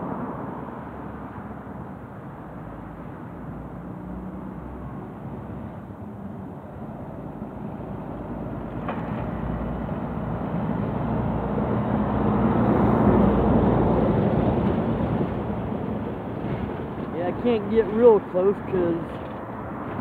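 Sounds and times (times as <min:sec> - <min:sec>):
traffic rumble: 0:00.0 - 0:20.0
vehicle engine and tyre noise: 0:00.0 - 0:20.0.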